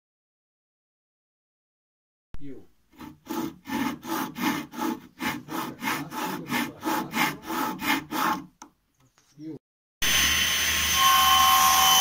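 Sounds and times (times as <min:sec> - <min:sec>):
hand saw cutting wood: 0:03.0 - 0:08.7.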